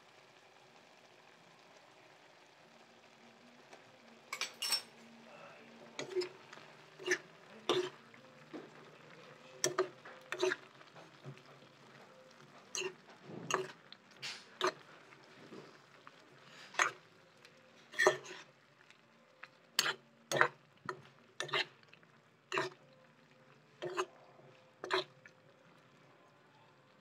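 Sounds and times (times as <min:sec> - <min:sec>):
spatula scraping a wok: 0:06.0 - 0:08.1, 0:09.6 - 0:11.4, 0:12.4 - 0:17.1, 0:17.8 - 0:18.6, 0:19.8 - 0:21.8, 0:22.5 - 0:22.8, 0:23.8 - 0:24.2, 0:24.8 - 0:25.1.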